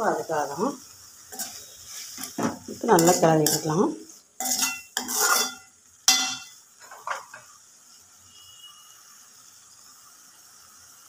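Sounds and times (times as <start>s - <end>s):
simmering pan hiss: 0.0s - 11.0s
metal spoon scraping a pan: 1.3s - 7.5s.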